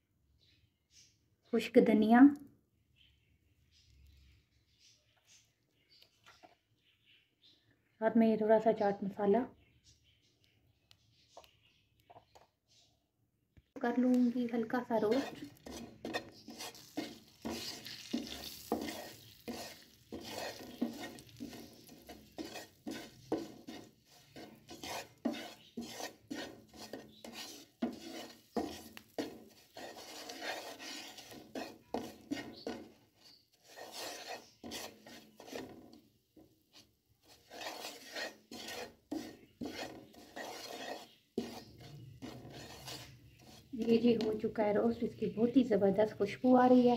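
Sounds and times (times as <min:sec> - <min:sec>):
spatula scraping spices in pan: 0:13.8 - 0:46.9.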